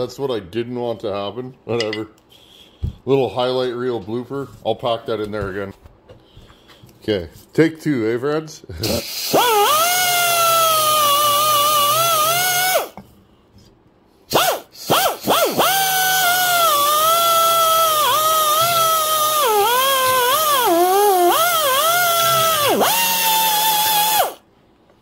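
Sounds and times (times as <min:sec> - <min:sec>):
rotary tool whining: 0:09.3 - 0:13.0, 0:14.3 - 0:24.4.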